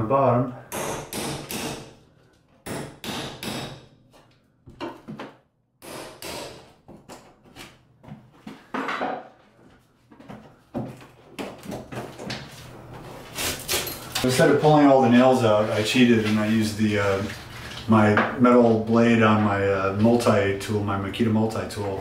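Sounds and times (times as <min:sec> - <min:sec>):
hammer striking steel pry bar: 0:02.7 - 0:03.9.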